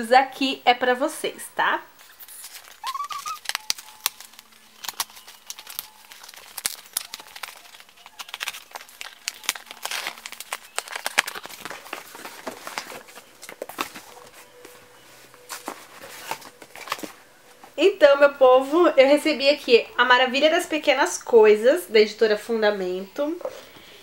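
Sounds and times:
cardboard scraping and tearing: 0:02.1 - 0:14.4
books rustling and clicking: 0:02.1 - 0:17.8
scissors cutting box tape: 0:02.2 - 0:12.0.

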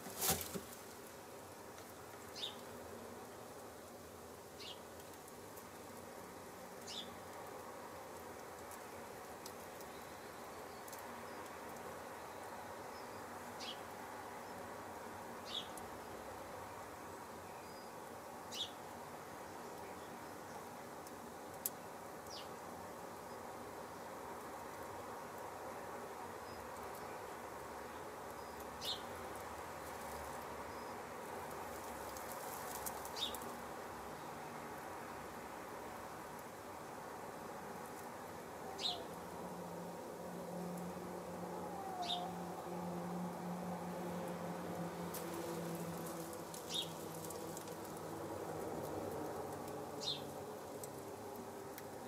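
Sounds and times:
high falling bird chirps: 0:38.8 - 0:39.1, 0:41.9 - 0:42.3.

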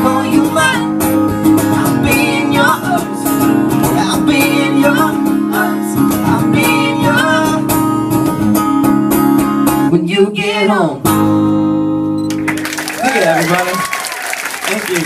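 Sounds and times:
acoustic guitar strumming: 0:00.0 - 0:10.0, 0:11.0 - 0:12.5.

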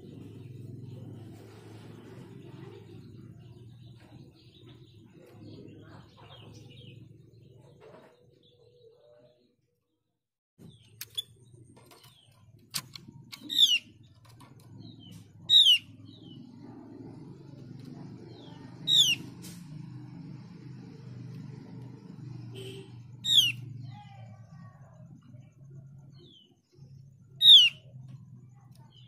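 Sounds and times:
sharp clicks: 0:10.9 - 0:14.7.

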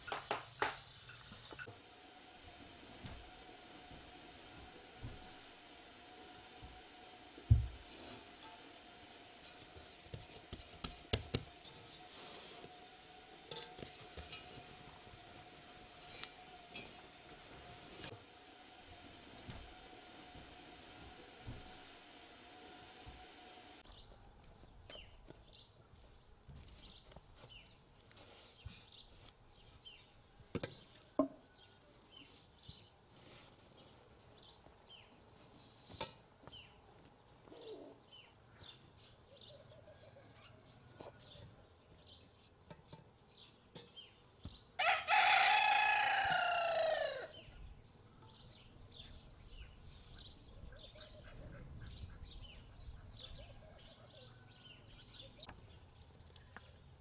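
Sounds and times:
rooster crowing: 0:44.8 - 0:47.4.

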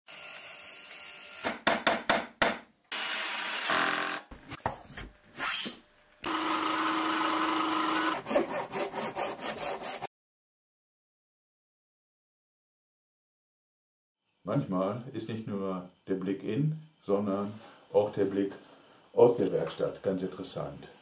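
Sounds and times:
sharp knocks on wood: 0:01.5 - 0:02.7
power tools running: 0:02.9 - 0:04.3, 0:06.2 - 0:08.5.

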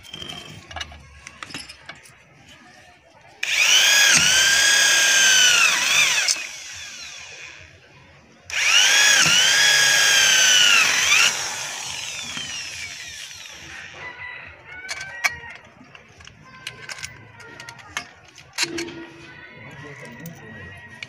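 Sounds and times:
electric drill whining: 0:03.4 - 0:07.8, 0:08.5 - 0:14.0.

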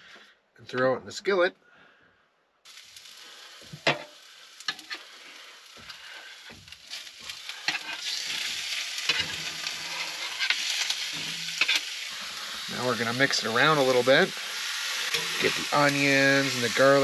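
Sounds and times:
meat sizzling in a skillet: 0:02.7 - 0:17.0.

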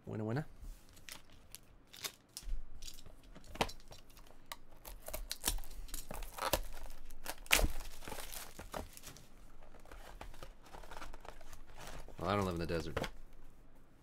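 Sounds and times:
plastic shrink wrap crinkling: 0:03.7 - 0:12.9.

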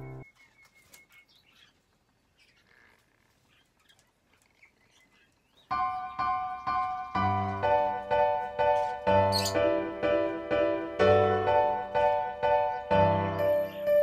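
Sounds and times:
piano music: 0:00.0 - 0:00.2, 0:05.7 - 0:14.0
parakeet chirping softly: 0:00.2 - 0:06.9, 0:08.8 - 0:09.6.

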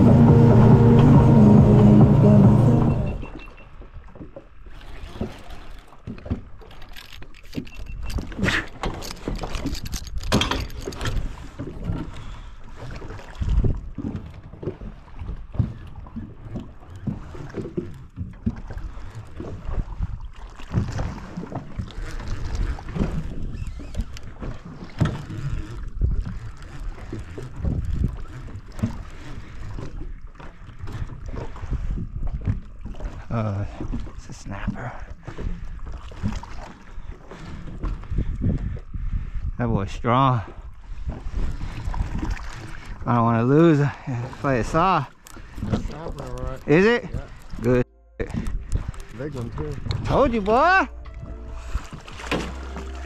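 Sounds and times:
water slapping boat hull: 0:00.0 - 0:53.0
wind buffeting microphone: 0:07.8 - 0:30.0, 0:30.8 - 0:43.2, 0:45.4 - 0:53.0.

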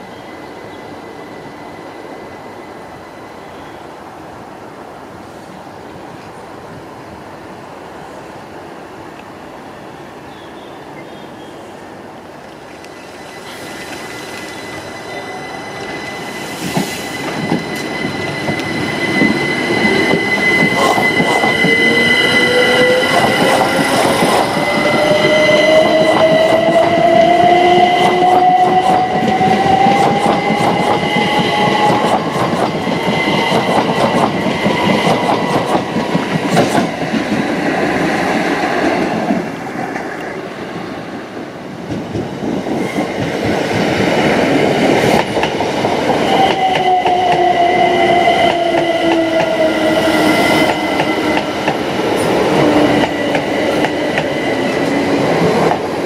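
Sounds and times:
steady high tone: 0:12.9 - 0:32.2.

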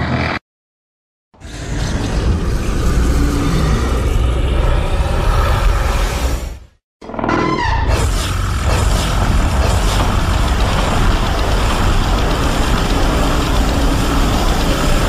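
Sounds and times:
loud deep steady roar: 0:01.4 - 0:06.7, 0:08.1 - 0:15.0
falling creature screech: 0:07.0 - 0:08.3.

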